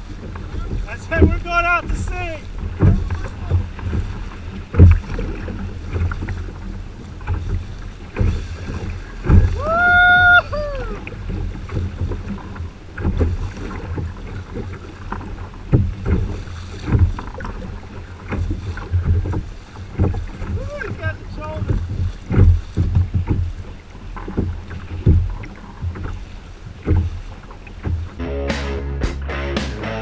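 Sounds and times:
wind on microphone: 0.0 - 27.3
low thumps of boat: 0.0 - 29.0
waves slapping kayak hull: 0.0 - 29.0
high held cry: 9.6 - 11.0.

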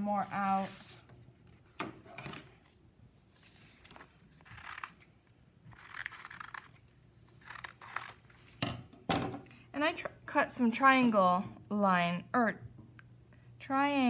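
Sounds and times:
paper rustling: 0.2 - 5.1
scissors snipping paper: 4.4 - 5.1, 5.7 - 6.8, 7.4 - 8.3.

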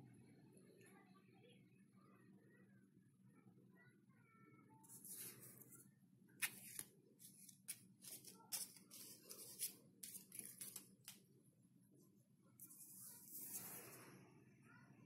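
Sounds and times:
coins and bills being handled: 6.4 - 11.2.

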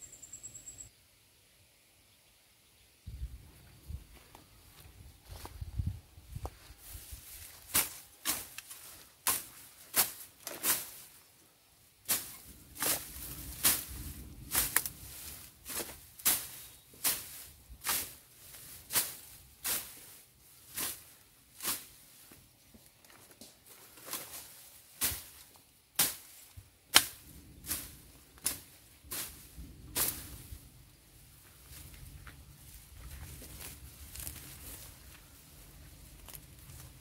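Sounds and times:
blade swishing through grass: 6.7 - 11.2, 12.0 - 22.3, 24.0 - 30.6, 32.6 - 37.0.

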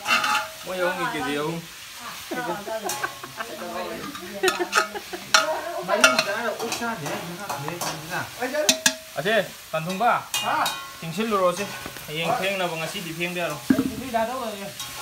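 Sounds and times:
metal ladle scraping steel pot: 0.0 - 0.6
people talking: 0.7 - 14.8.

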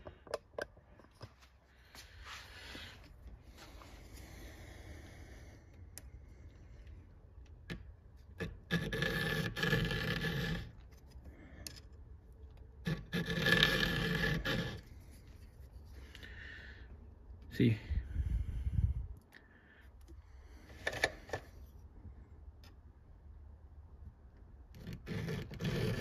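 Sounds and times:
file scraping on saw chain: 8.4 - 10.8, 12.8 - 14.9, 24.8 - 26.0.

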